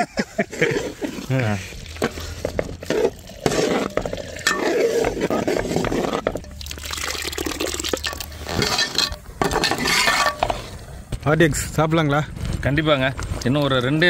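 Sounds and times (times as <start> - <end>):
thick gravy bubbling in a pot: 0.4 - 8.8.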